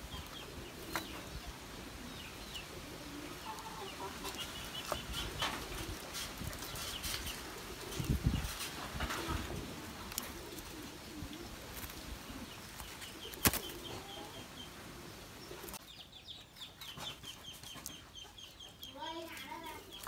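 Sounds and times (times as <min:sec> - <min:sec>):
doves cooing: 0:00.0 - 0:15.8
doves flapping wings: 0:04.2 - 0:14.1.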